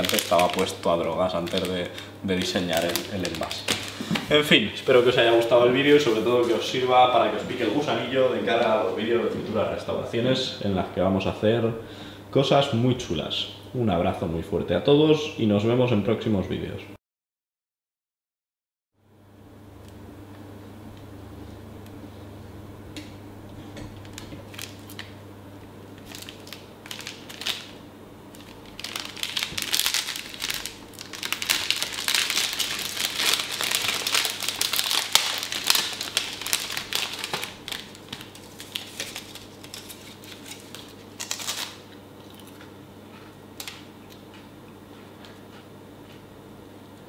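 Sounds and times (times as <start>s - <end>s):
plastic wrapper crinkling: 0.0s - 4.3s, 24.0s - 25.2s, 25.9s - 42.6s, 43.6s - 43.8s
faint steady hum: 0.0s - 17.0s, 19.0s - 47.0s.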